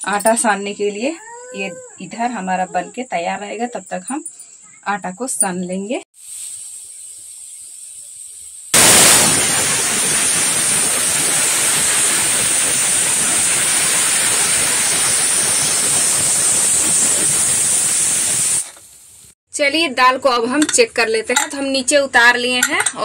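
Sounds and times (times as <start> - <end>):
steam hissing: 6.2 - 19.4
pressure cooker whistling: 9.9 - 18.8.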